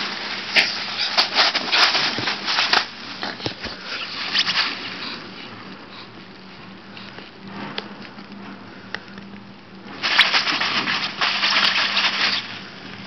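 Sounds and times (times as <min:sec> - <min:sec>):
nylon fabric rustling and crackling: 0:00.0 - 0:05.7, 0:09.8 - 0:13.0
dogs scrabbling: 0:00.0 - 0:06.1, 0:10.0 - 0:12.6.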